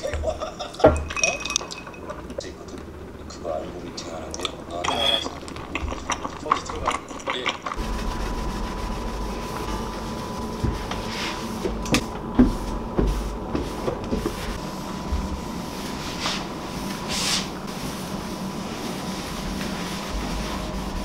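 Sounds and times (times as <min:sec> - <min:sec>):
steady hum: 0:00.0 - 0:21.0
cloth wiping countertop: 0:07.8 - 0:21.0.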